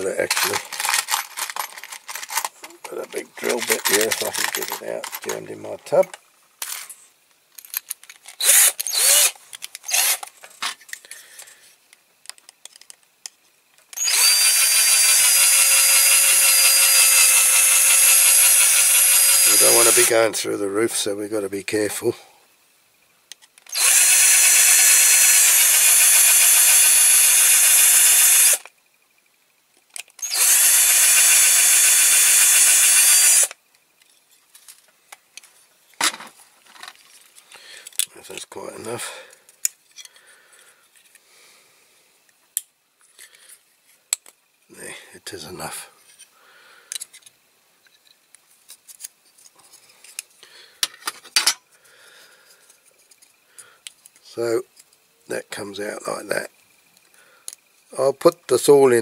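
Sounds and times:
plastic and metal parts clicking: 0.3 - 5.4, 12.2 - 14.0
power drill boring metal: 8.4 - 10.2, 14.0 - 20.2, 23.7 - 28.7, 30.2 - 33.6.

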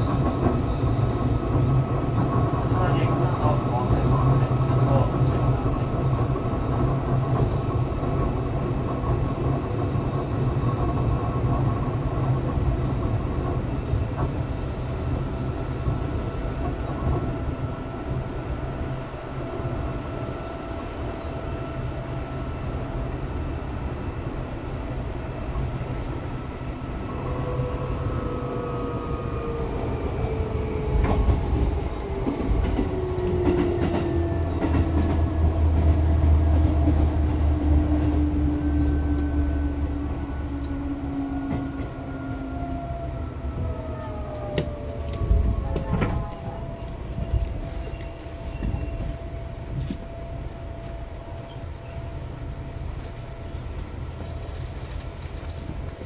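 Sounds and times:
rail joint clicks: 0.0 - 17.6, 27.0 - 42.9, 43.5 - 56.0
train wheels rumbling on rails: 0.0 - 56.0
train whine falling in pitch: 27.0 - 53.0.

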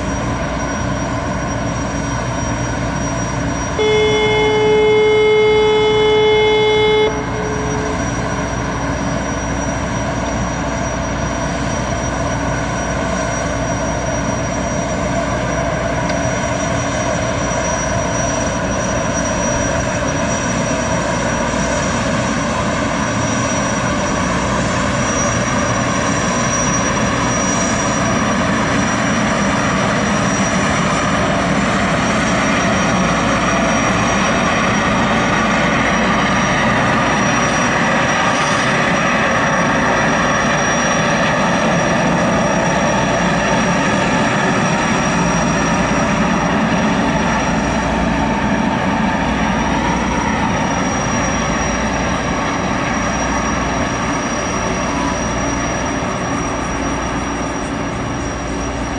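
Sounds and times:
high thin whine: 0.0 - 15.6
gas turbines running: 0.0 - 58.9.

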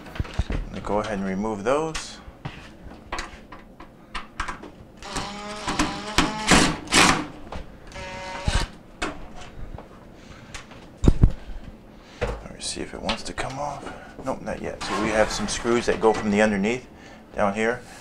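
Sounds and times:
cordless drill motor running: 5.0 - 7.2, 7.9 - 8.8
sharp drill clicks: 5.0 - 7.2, 7.9 - 8.8.

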